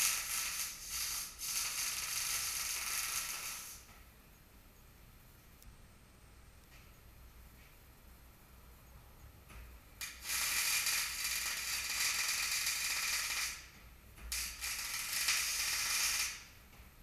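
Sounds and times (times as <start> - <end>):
arc welding crackling: 0.0 - 3.9, 10.0 - 16.6.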